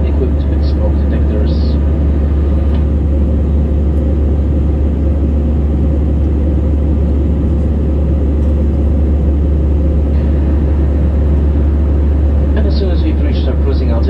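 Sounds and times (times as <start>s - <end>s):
airliner cabin drone: 0.0s - 14.0s.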